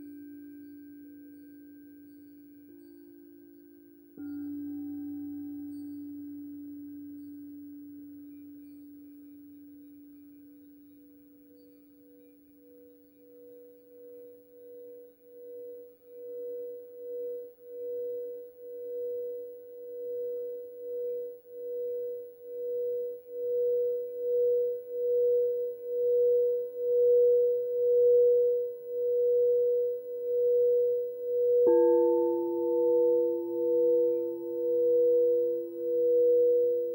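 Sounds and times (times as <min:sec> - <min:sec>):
singing bowl struck: 0:00.0 - 0:14.7, 0:30.3 - 0:36.9
lower ringing bowl tone: 0:00.0 - 0:36.9
singing bowl rimmed with mallet: 0:00.0 - 0:36.9.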